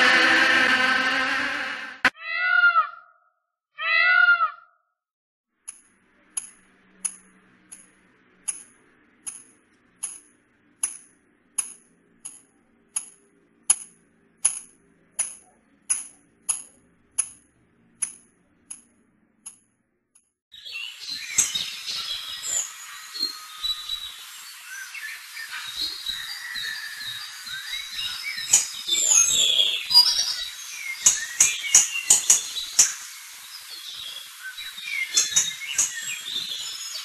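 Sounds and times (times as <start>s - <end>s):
cat meowing: 2.2s - 2.9s
high metallic ticks: 5.6s - 20.3s.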